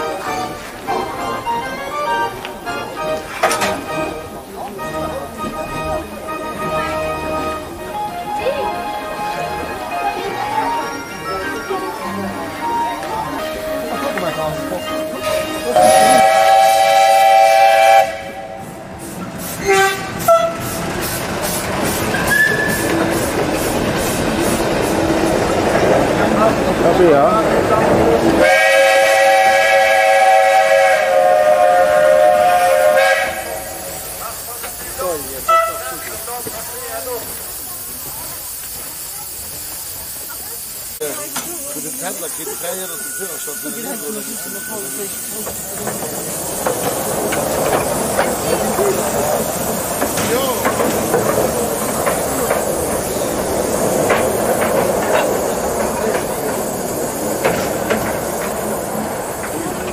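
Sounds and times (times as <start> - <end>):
faint hiss of steam: 0.0 - 59.9
steam whistle blast: 15.7 - 18.7, 28.4 - 34.0.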